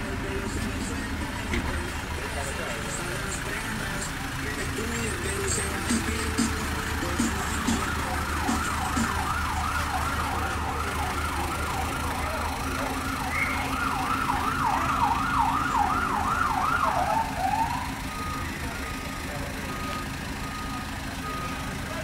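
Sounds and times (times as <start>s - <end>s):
siren yelping: 5.9s - 21.6s.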